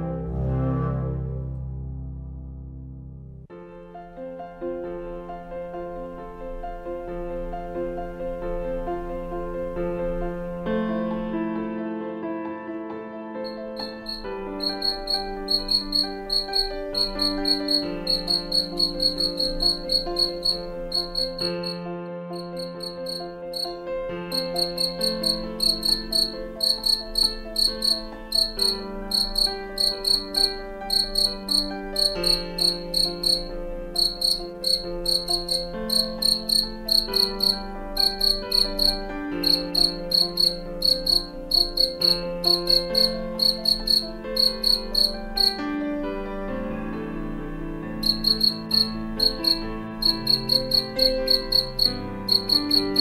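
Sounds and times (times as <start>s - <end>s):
soft background music: 0.0s - 53.0s
cricket chirping: 13.4s - 21.8s, 22.4s - 45.6s, 48.0s - 53.0s.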